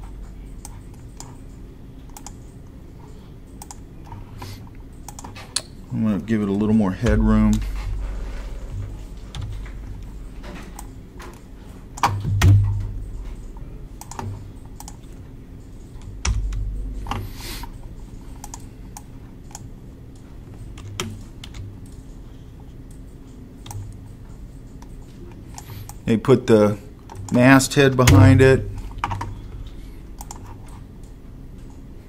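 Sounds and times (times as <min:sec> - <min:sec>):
low steady hum: 0:00.0 - 0:32.0
keyboard and mouse clicking: 0:00.1 - 0:02.8, 0:03.5 - 0:05.8, 0:09.3 - 0:17.8, 0:18.4 - 0:22.2, 0:22.8 - 0:26.0, 0:27.0 - 0:31.8
loud thumps: 0:12.1 - 0:13.2, 0:16.2 - 0:17.3, 0:28.1 - 0:28.8.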